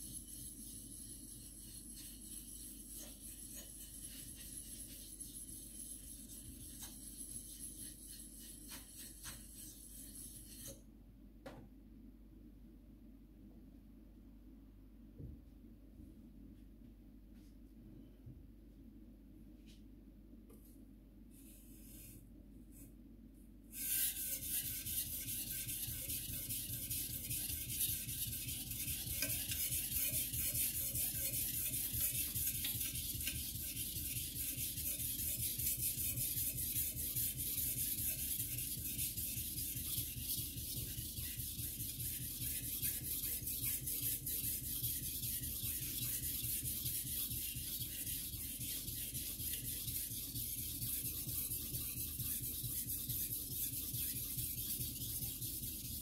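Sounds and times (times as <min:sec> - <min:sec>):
knife sharpened on whetstone: 0:00.0 - 0:10.8, 0:28.7 - 0:39.6.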